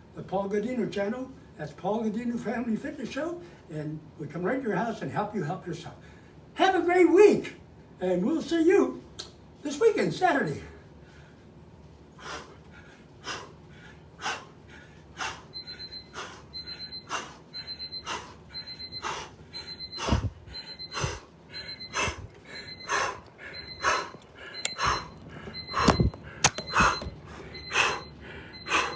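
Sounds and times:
man breathing hard: 0:10.8 - 0:28.9
phone handling thumps: 0:25.8 - 0:27.2.

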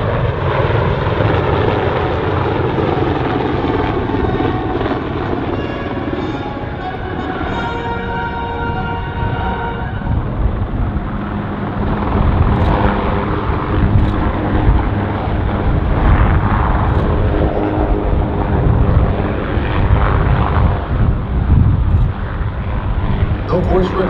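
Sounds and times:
military aircraft engine rumble: 0:00.0 - 0:24.0.

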